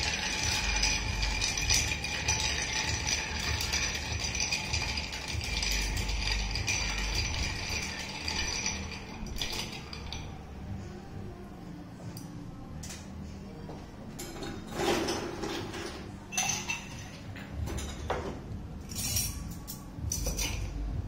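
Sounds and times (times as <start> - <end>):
ice clinking in a glass: 0.0 - 10.3, 16.3 - 17.2.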